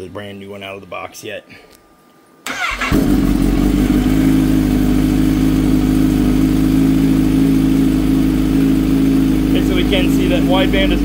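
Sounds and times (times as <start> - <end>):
engine starter cranking: 2.5 - 3.2
motorcycle engine idling: 2.6 - 11.0.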